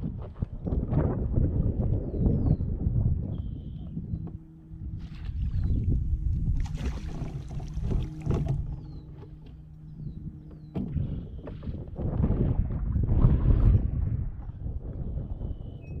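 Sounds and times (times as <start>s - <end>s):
low hum: 0.0s - 16.0s
water moving around kayak: 0.0s - 16.0s
wind on microphone: 0.0s - 16.0s
splashing: 6.4s - 9.2s.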